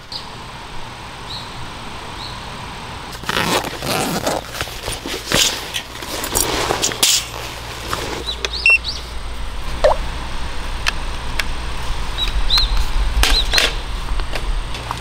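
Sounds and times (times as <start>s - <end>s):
handling rustling and scraping: 3.1s - 8.6s
bird chirping: 8.2s - 9.1s, 12.2s - 13.5s.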